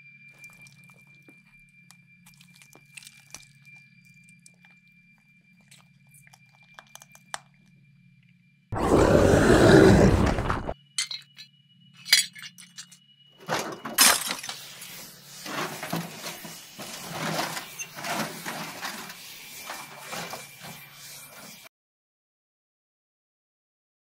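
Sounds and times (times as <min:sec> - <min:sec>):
glass breaking and shards scattering: 0:11.0 - 0:14.6.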